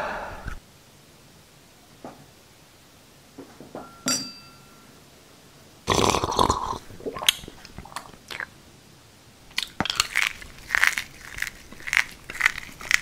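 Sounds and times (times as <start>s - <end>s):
light clink: 3.8s - 4.8s
wet mouth sound: 5.9s - 8.6s
small crackles: 9.5s - 13.0s.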